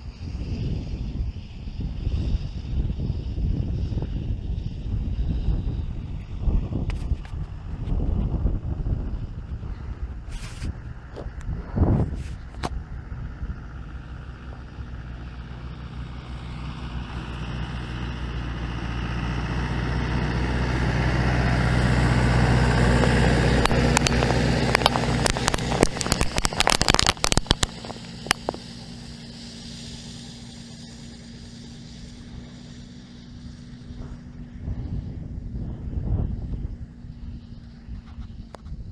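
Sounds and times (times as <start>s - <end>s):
tractor diesel engine passing: 0.0s - 38.9s
granules pattering around microphone: 23.6s - 38.9s.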